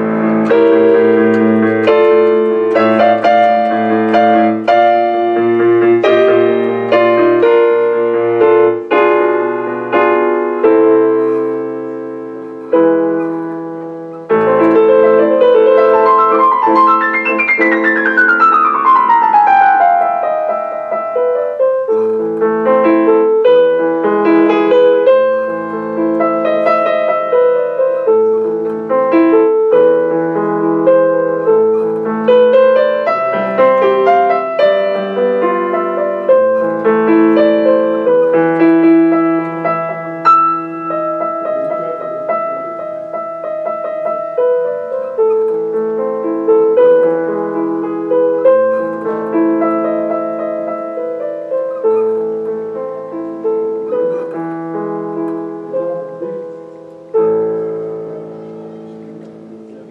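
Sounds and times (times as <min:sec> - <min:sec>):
classical piano piece: 0:00.0 - 0:59.9.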